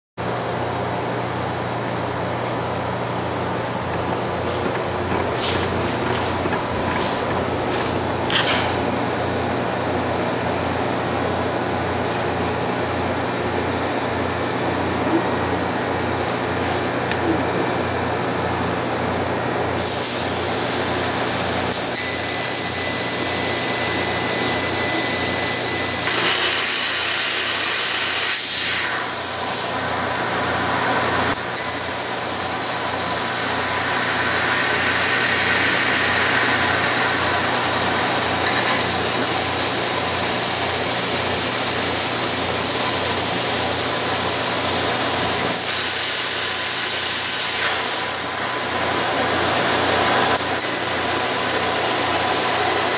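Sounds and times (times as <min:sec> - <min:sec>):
gas hissing through nozzle: 0:19.8 - 0:52.9.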